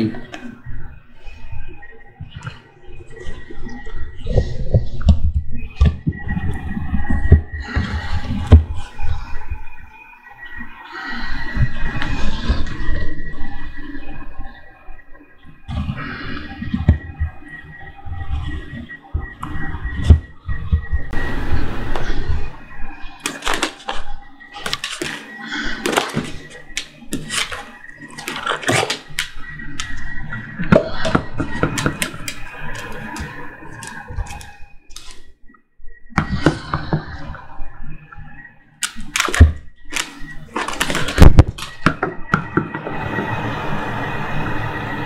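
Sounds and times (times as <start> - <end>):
dog chewing toys: 25.8 - 30.0.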